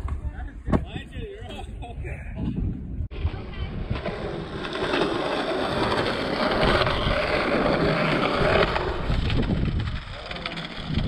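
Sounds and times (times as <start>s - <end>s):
skateboard wheels rolling on concrete: 3.0s - 11.0s.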